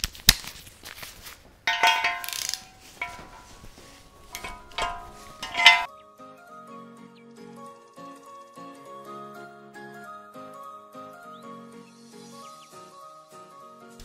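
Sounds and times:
metal socket clanking on cylinder head: 1.7 - 3.7, 4.3 - 5.9
background music: 4.3 - 14.0.

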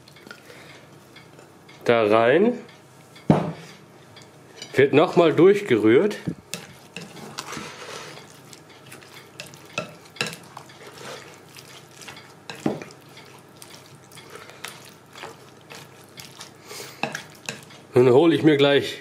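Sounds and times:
wet stirring in a bowl: 4.6 - 18.2.

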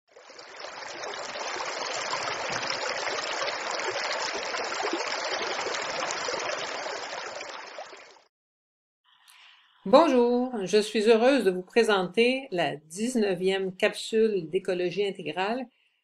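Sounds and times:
stream rushing: 0.1 - 8.0.

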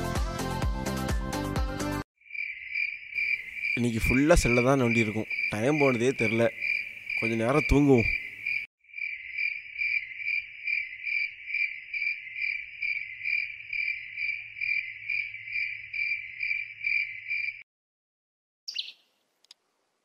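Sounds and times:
cricket chirping: 2.2 - 17.6.

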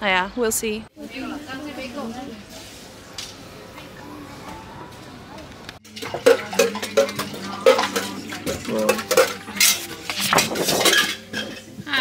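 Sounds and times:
dishes and cutlery clattering: 5.8 - 12.0.

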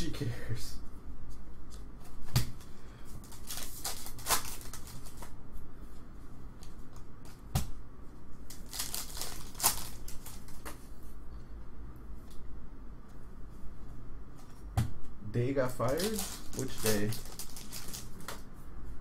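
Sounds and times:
foil wrappers crinkling and tearing: 3.2 - 5.3, 8.5 - 10.6, 15.8 - 18.4.

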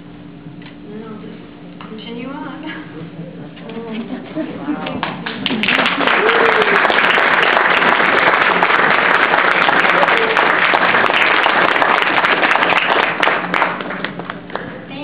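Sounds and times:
audience applauding: 4.9 - 14.8.

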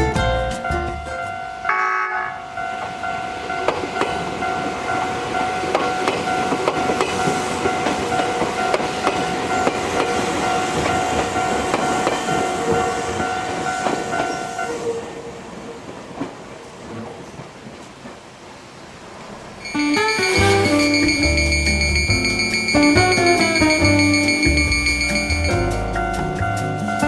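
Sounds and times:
level crossing warning bell: 0.6 - 14.8, 19.6 - 27.0
train wheels clicking on rail joints: 2.8 - 15.1, 15.8 - 18.4.

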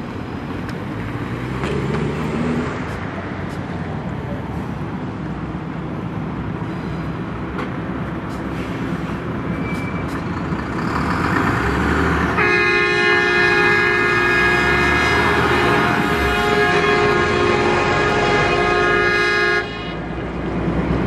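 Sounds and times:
lorry engine rumble: 0.0 - 21.0
locomotive air horn blast: 12.3 - 20.1.

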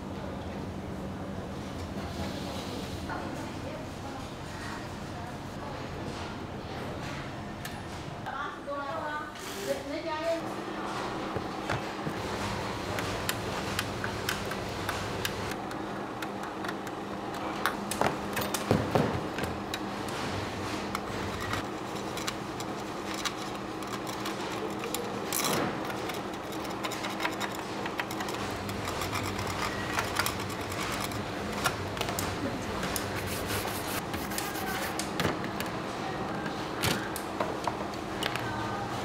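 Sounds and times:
steady machine hum: 10.1 - 39.0.

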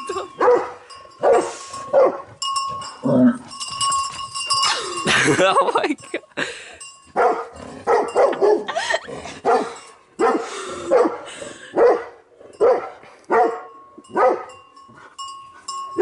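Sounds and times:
dog barking: 0.4 - 2.3, 7.2 - 8.7, 9.4 - 14.5.

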